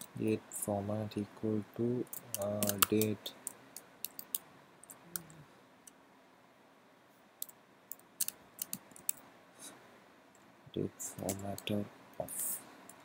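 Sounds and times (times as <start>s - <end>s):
keyboard key clicks: 2.2s - 3.1s.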